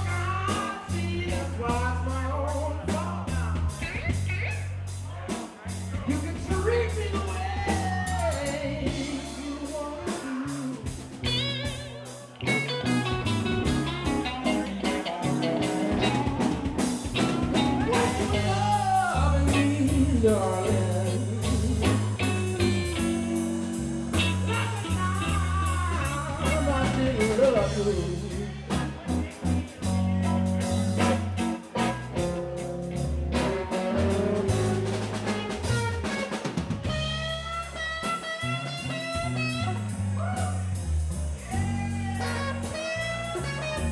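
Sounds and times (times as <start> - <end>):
man singing lead vocal: 0.0 - 4.2, 6.0 - 12.6, 14.1 - 31.2, 33.4 - 35.6
blues band playing: 0.0 - 43.9.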